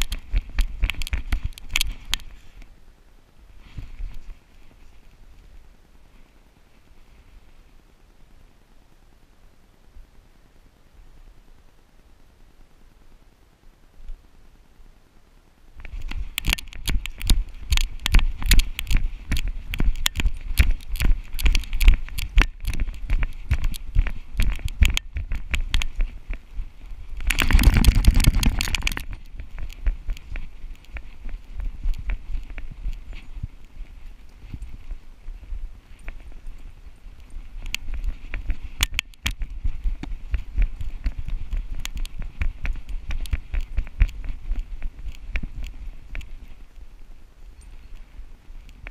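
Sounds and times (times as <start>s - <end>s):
harness rumble: 15.8s - 48.9s
wind on microphone: 15.8s - 48.9s
paws on dry leaves: 15.9s - 46.9s
camera jolting in harness: 27.2s - 29.2s.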